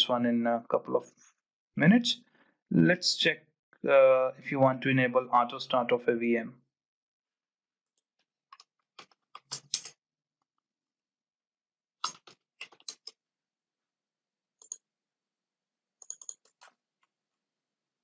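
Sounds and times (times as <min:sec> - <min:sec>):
computer keyboard typing: 0:14.6 - 0:14.8, 0:16.0 - 0:16.8.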